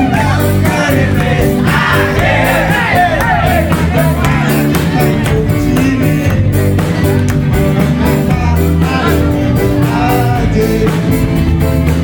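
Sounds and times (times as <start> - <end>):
amplified song with band: 0.0 - 12.0.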